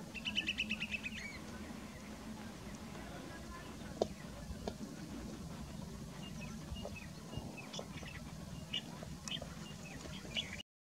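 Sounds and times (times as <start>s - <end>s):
low background rumble: 0.0s - 10.6s
bird high whistled calls: 0.1s - 1.4s.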